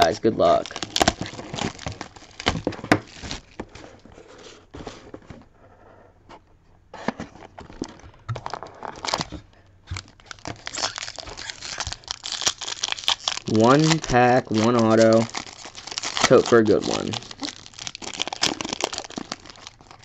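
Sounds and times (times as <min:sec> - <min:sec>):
wrapping crinkling: 0:00.0 - 0:04.9, 0:07.8 - 0:20.0
cardboard box tearing: 0:00.6 - 0:04.0.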